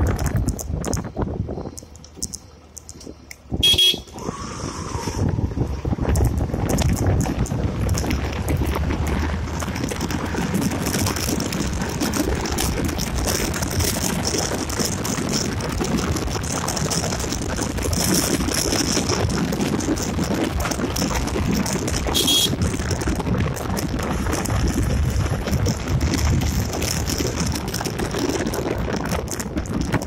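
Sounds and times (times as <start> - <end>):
wind rush over microphone: 0.0 - 2.3, 3.4 - 30.0
motorcycle engine: 0.0 - 4.3, 5.3 - 30.0
high beep: 0.3 - 4.2.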